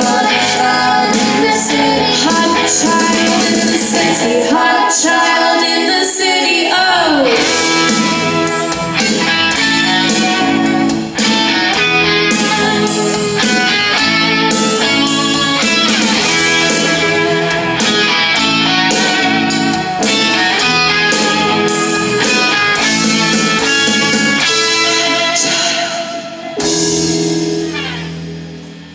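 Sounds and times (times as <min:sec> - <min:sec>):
strummed electric guitar: 0:00.0 - 0:05.0, 0:07.1 - 0:28.9
person singing: 0:00.0 - 0:08.8, 0:24.5 - 0:26.9.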